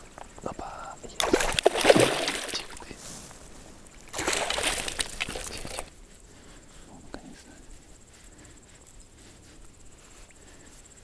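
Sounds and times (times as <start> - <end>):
water splashing: 1.2 - 3.0, 4.0 - 5.9.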